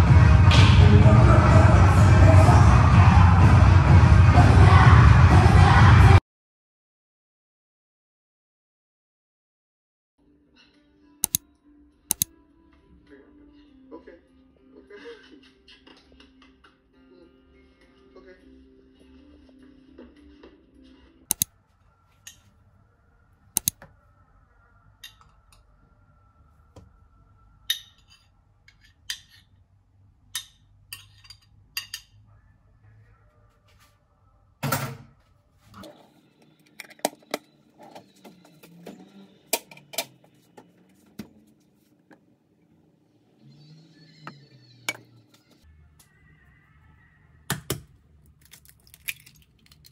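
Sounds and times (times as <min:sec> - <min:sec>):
cutlery and cookware clinking: 0:27.7 - 0:29.5, 0:30.4 - 0:32.2.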